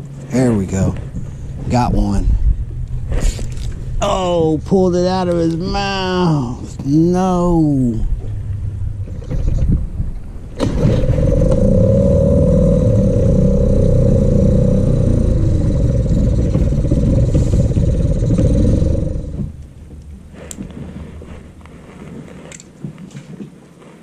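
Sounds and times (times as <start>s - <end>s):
boat motor running: 5.6s - 21.4s.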